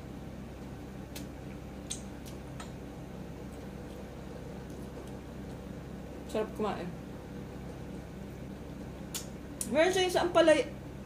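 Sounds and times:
steady low hum: 0:00.0 - 0:11.0
chewing and picking at food: 0:00.6 - 0:02.8, 0:03.4 - 0:05.7.

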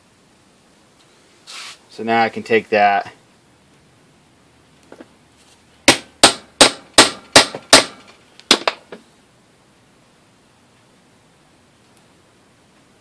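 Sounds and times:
hammer striking metal: 0:05.9 - 0:08.8.

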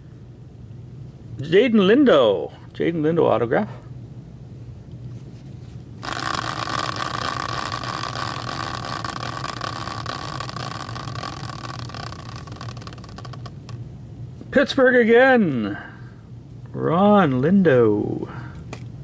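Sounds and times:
caster wheel flicked by hand: 0:06.0 - 0:13.8
caster wheel spinning whir: 0:06.0 - 0:13.8.

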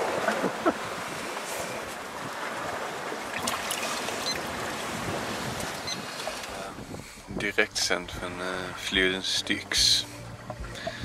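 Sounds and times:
water sloshing in a bucket: 0:00.0 - 0:06.8
wind and sea rushing: 0:00.0 - 0:11.0.

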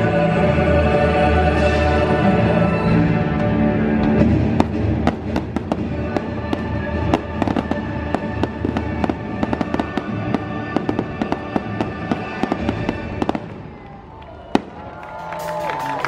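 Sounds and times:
loud show music: 0:00.0 - 0:13.5, 0:15.0 - 0:16.0
fireworks popping and crackling: 0:04.1 - 0:16.0.

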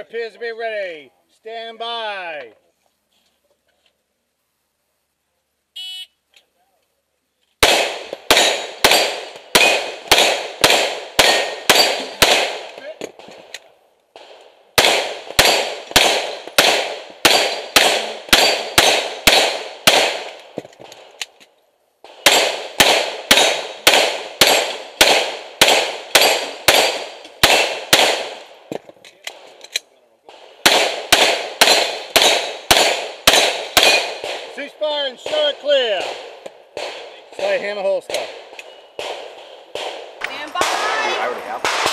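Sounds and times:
rapid pistol shots: 0:07.6 - 0:12.7, 0:14.2 - 0:21.1, 0:22.1 - 0:28.5, 0:30.3 - 0:34.6, 0:35.2 - 0:41.9.

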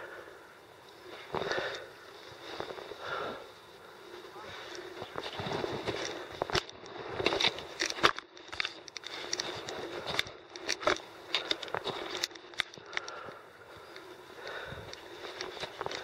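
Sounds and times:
climbing gear clicking: 0:04.6 - 0:16.0.

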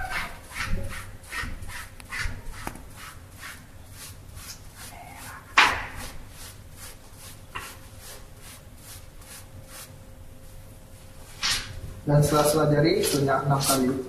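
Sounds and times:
soapy hands rubbing: 0:00.0 - 0:10.0.

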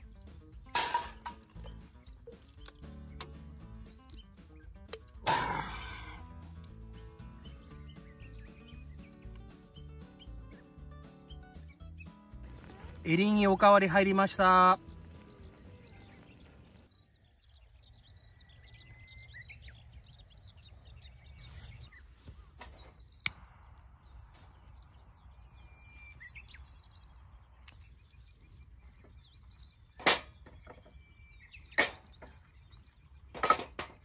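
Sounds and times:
birds chirping and singing: 0:00.0 - 0:34.0.

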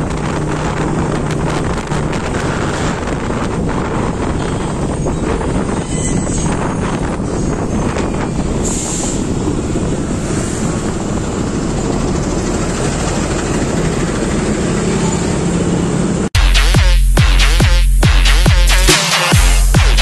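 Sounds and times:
wind and road noise: 0:00.0 - 0:16.4
electronic music: 0:16.4 - 0:20.0.

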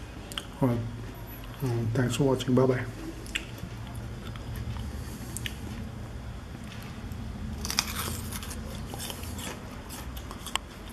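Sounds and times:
low steady hum: 0:00.0 - 0:10.9
crunching and chewing fruit: 0:00.2 - 0:00.6, 0:03.2 - 0:10.9.

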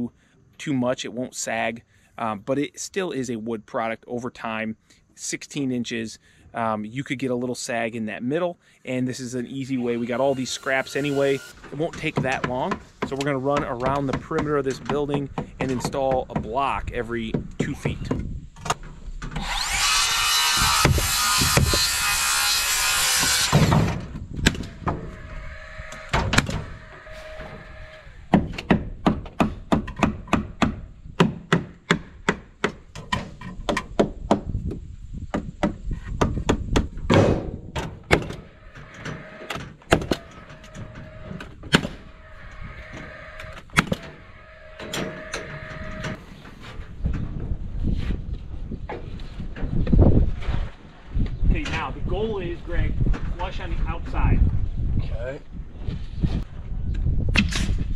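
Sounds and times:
loud rushing hiss: 0:09.9 - 0:11.9
sharp wooden knocks and clacks: 0:11.6 - 0:19.4, 0:28.3 - 0:34.5, 0:35.3 - 0:38.4.

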